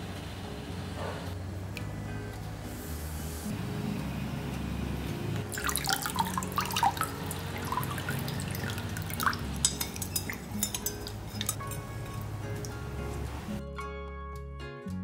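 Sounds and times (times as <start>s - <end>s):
water splashing and dripping: 5.5s - 13.6s.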